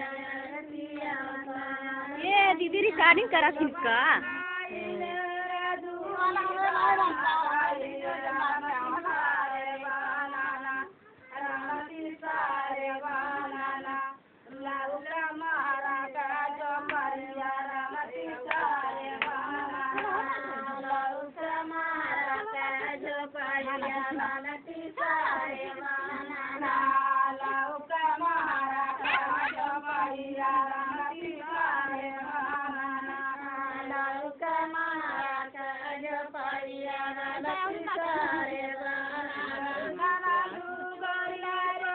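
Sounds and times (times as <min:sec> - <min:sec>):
women singing a folk song: 0:00.0 - 0:41.9
hands clapping: 0:18.5 - 0:20.2.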